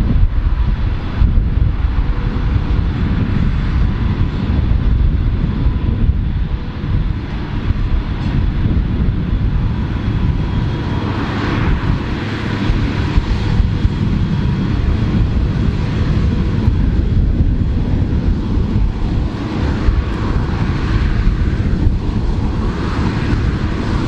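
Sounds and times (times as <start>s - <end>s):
tractor engine rumble: 0.0s - 24.0s.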